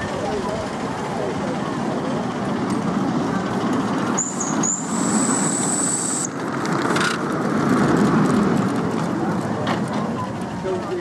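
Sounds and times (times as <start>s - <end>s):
train wheels clattering on rail: 0.0s - 11.0s
steam hiss: 3.3s - 6.4s
shrill steam whistle tone: 4.1s - 6.4s.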